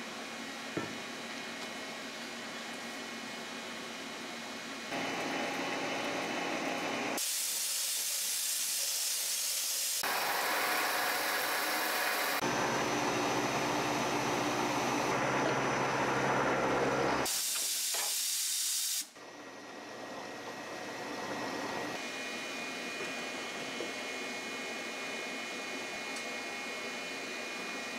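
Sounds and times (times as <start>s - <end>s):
milling machine cutting hiss: 15.8s - 19.1s.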